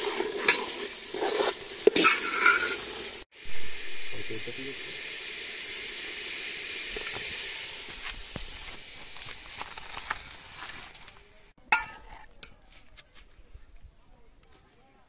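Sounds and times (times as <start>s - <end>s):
curry sizzling in a pot: 0.0s - 13.3s
metal ladle clinking against pot: 11.6s - 12.6s.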